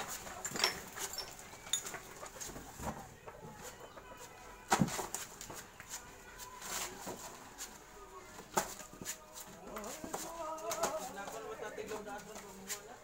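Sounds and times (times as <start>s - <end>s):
bananas knocking and thudding: 4.7s - 5.6s.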